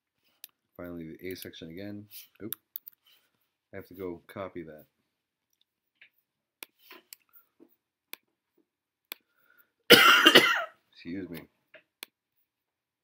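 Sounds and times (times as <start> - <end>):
person coughing: 9.9 - 10.8.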